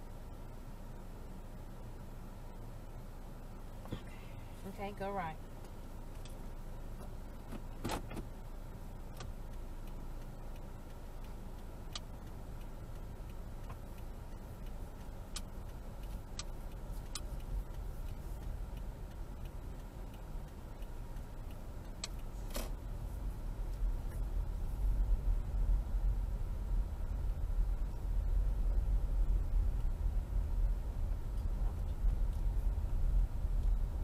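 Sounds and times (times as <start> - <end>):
car engine and road noise: 0.0 - 34.0
sharp clicks: 9.0 - 24.5.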